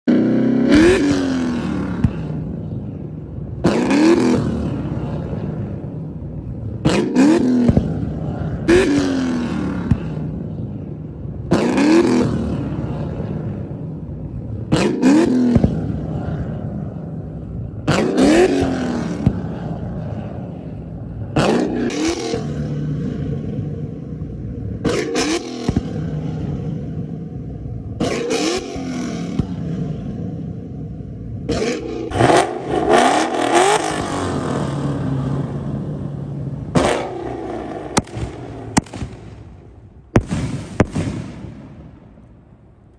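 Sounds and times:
car engine revving: 0.0s - 42.9s
exhaust pops and crackles: 0.7s - 2.8s, 6.8s - 10.6s, 14.7s - 16.2s, 24.2s - 26.2s, 36.7s - 41.5s.

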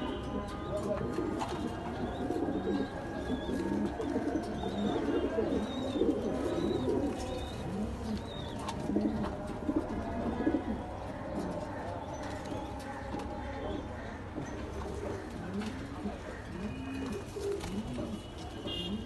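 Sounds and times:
pigeons cooing: 0.0s - 19.0s.

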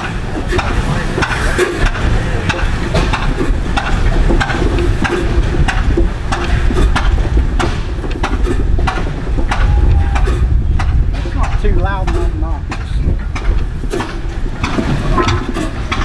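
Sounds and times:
engine exhaust puffs: 0.0s - 16.0s
engine low rumble: 0.0s - 16.0s.

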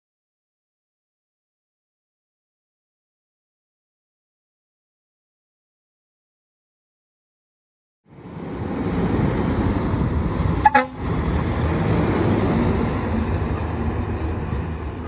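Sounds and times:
fire engine driving past: 8.1s - 15.0s
short horn toot: 10.6s - 11.0s.

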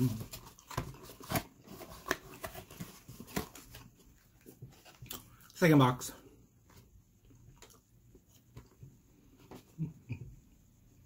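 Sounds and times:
cardboard box handling: 0.1s - 3.9s.

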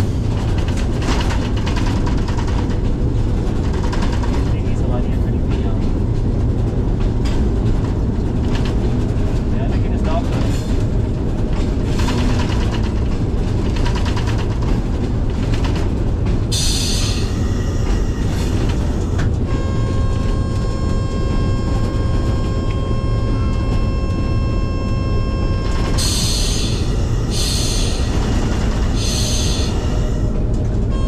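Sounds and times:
wheels clattering over rail joints: 0.0s - 23.9s, 25.6s - 31.0s
locomotive engine rumble: 0.0s - 31.0s
locomotive horn: 17.0s - 31.0s.

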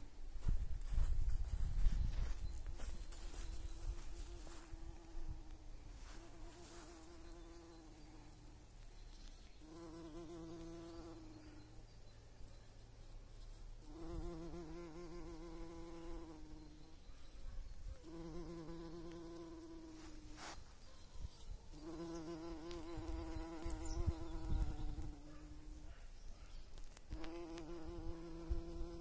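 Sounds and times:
bumblebee buzzing: 3.4s - 8.7s, 9.6s - 11.7s, 13.8s - 17.0s, 18.0s - 20.4s, 21.7s - 25.8s, 27.1s - 29.0s.

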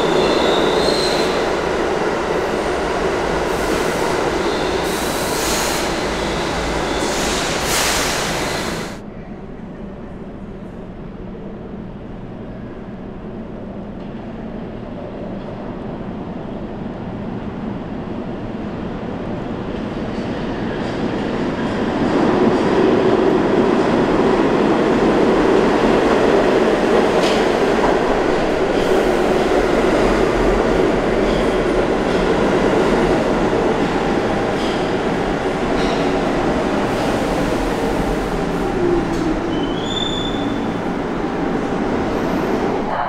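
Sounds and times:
falling whine of train: 0.0s - 43.0s
subway train rumbling: 0.0s - 43.0s
high brake squeal: 0.2s - 1.4s, 4.4s - 8.9s, 39.5s - 40.7s.

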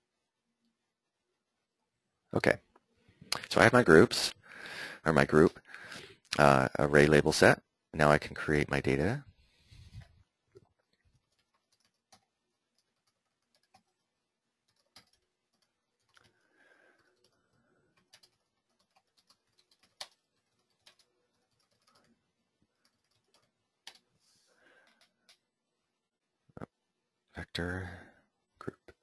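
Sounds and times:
keyboard typing: 10.0s - 24.1s, 24.8s - 25.5s.

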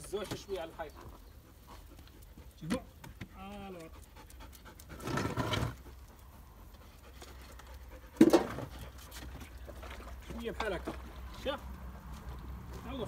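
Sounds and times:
wooden pallet scraping: 5.0s - 5.8s.

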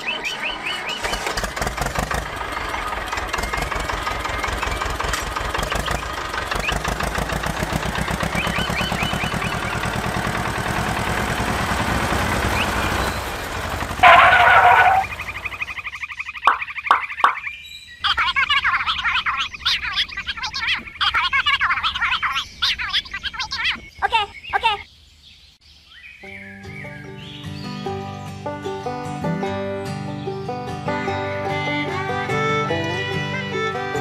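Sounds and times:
toy tractor engine chugging: 0.0s - 17.4s, 31.6s - 34.0s
loud pitched blast: 14.0s - 15.2s.

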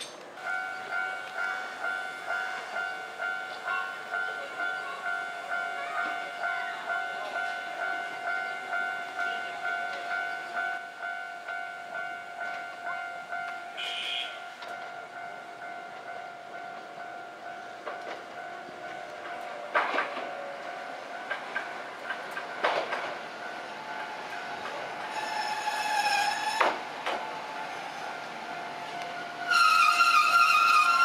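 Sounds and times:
level crossing warning bell: 0.0s - 25.7s, 26.4s - 31.0s
electric train rolling: 0.0s - 31.0s
train wheel squeal: 13.8s - 14.4s, 23.9s - 28.1s, 29.1s - 31.0s
train wheels clacking: 17.5s - 28.0s.

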